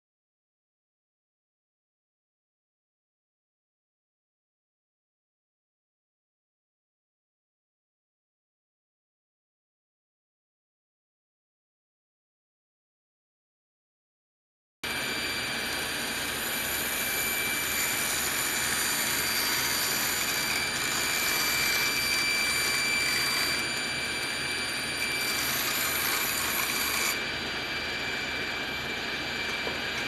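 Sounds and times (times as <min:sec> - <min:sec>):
table saw cutting wood: 0:14.8 - 0:30.0
thickness planer running: 0:14.8 - 0:30.0.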